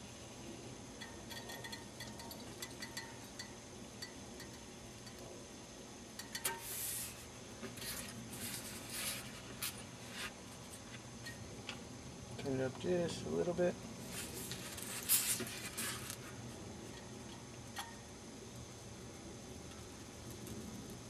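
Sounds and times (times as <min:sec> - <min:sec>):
foam ticks and crackles: 0:19.5 - 0:21.0.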